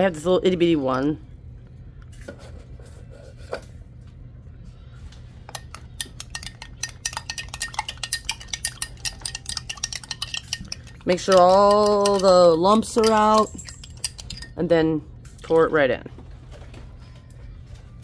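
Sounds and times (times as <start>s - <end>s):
low steady hum: 0.0s - 18.0s
spoon clinking against glass: 5.5s - 14.6s.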